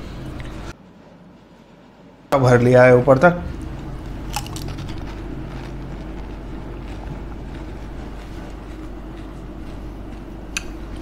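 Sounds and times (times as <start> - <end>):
electrical hum: 0.0 - 11.0
chewing mouth sounds: 3.6 - 11.0.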